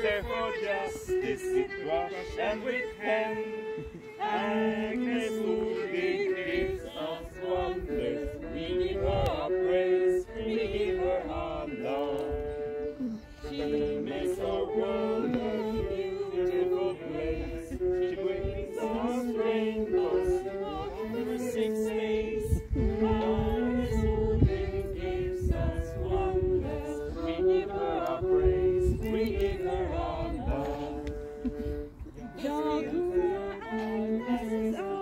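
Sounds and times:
group singing a cappella: 0:00.0 - 0:35.0.

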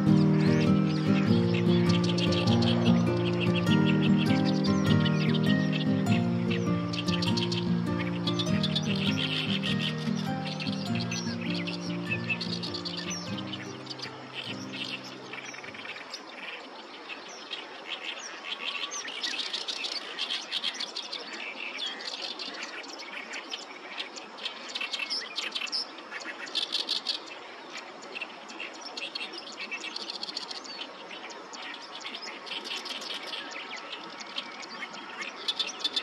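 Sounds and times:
bird singing harsh chattering phrases: 0:00.0 - 0:16.2
steady background hiss: 0:00.0 - 0:36.0.

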